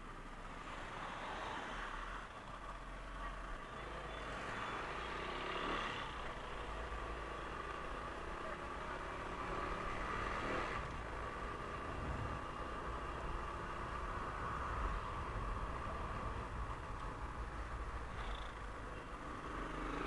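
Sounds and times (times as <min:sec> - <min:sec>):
motorcycle engine drone: 0:04.6 - 0:20.0.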